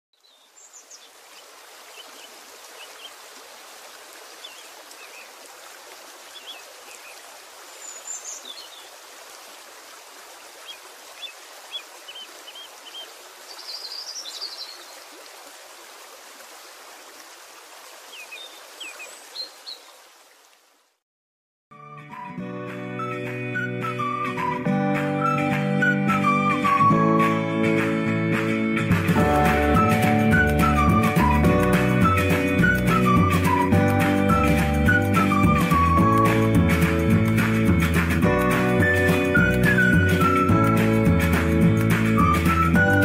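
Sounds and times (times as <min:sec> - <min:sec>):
birds chirping and trilling: 0:00.2 - 0:03.2, 0:04.4 - 0:05.4, 0:06.3 - 0:09.0, 0:10.6 - 0:15.1, 0:18.1 - 0:20.0.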